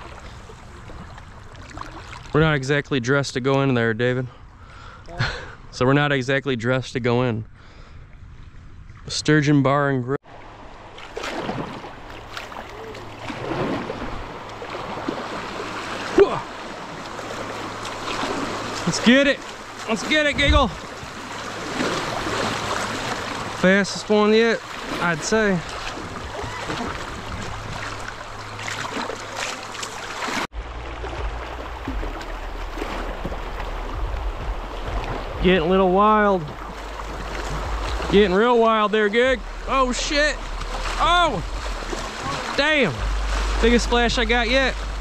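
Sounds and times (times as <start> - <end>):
paddle strokes splashing: 0.0 - 2.4, 10.3 - 45.0
river water rushing: 10.3 - 45.0
low rumble: 30.5 - 38.4, 39.2 - 45.0.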